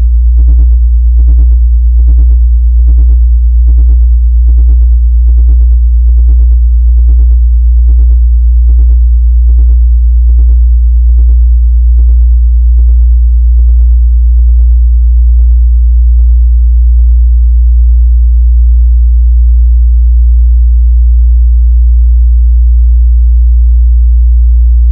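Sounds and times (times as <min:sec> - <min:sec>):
low electronic sine tone: 0:00.0 - 0:24.9
pulsing synthesized beat: 0:03.8 - 0:10.6, 0:11.2 - 0:15.6.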